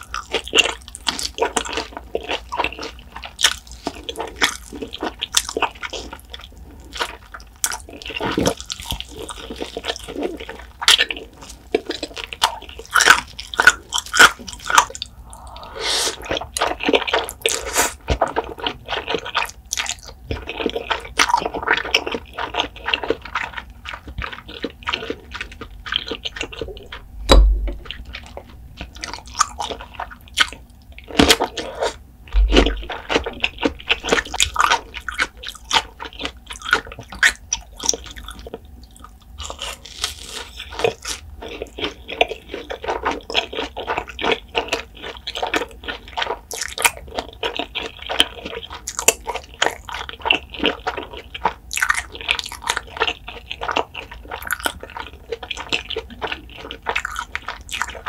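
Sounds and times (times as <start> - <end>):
wet chewing and crackly bites: 0.0 - 58.0
noodle slurp: 17.4 - 18.0.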